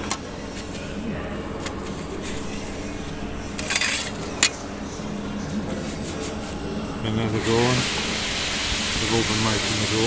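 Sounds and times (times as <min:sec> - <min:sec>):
steady workshop hum: 0:00.0 - 0:10.0
metal parts scraping: 0:03.6 - 0:04.2.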